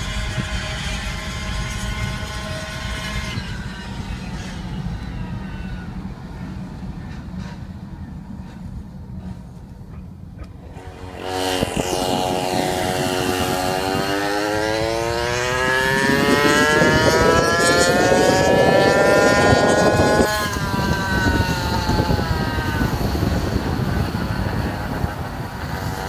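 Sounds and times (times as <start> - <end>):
two-stroke engine at high revs: 0.0 - 4.9, 10.4 - 26.0
road and wind noise: 0.0 - 26.0.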